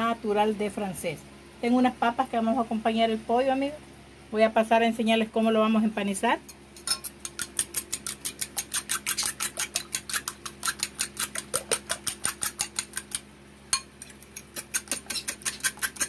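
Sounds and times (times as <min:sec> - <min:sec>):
fork clinking against glass bowl: 0:06.8 - 0:12.8.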